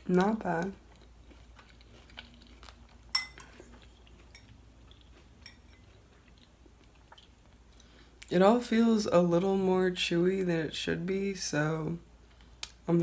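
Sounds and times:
cutlery clinking on dish: 3.1 - 3.7.

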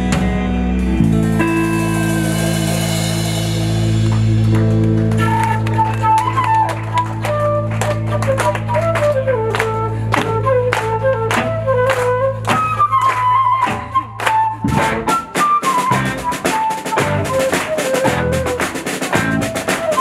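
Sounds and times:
bass: 0.0 - 20.0
drum kit: 0.0 - 20.0
electric guitars: 0.0 - 20.0
flute melody: 4.6 - 20.0.

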